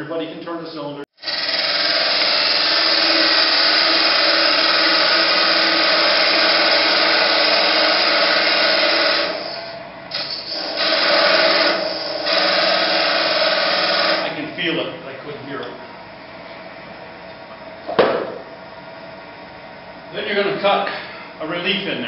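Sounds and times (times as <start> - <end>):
lathe cutting wood: 1.2 - 14.4.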